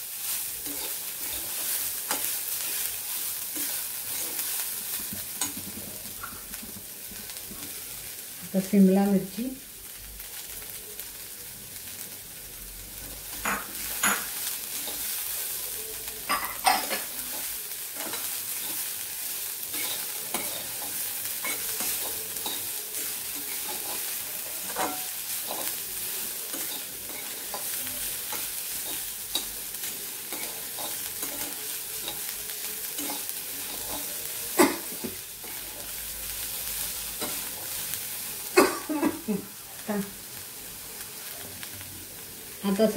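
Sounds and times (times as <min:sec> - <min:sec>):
vegetables sizzling in a pan: 0:00.0 - 0:42.9
metal spatula scraping a pan: 0:00.4 - 0:05.7, 0:19.6 - 0:36.0.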